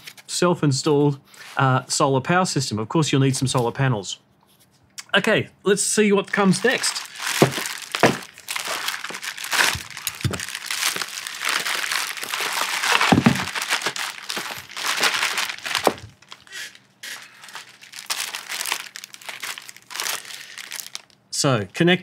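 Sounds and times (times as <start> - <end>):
plastic bag crinkling: 6.3 - 21.2.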